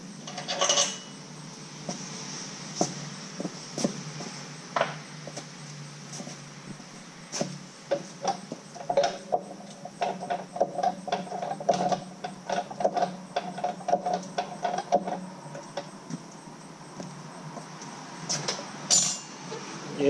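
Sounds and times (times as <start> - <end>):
floor jack clicking and creaking: 7.4 - 16.3.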